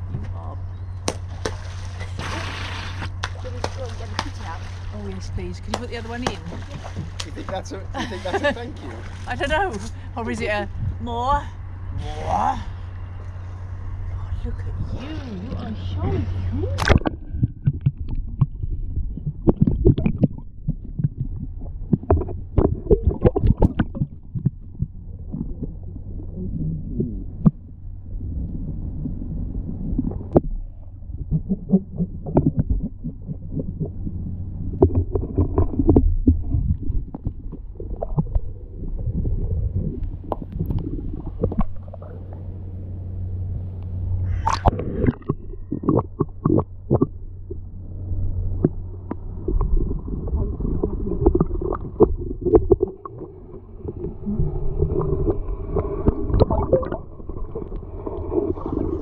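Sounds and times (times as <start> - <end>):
muffled underwater hum: 0.0 - 59.0
dull underwater knocks and thuds: 1.0 - 9.9, 16.8 - 25.7, 29.6 - 38.6.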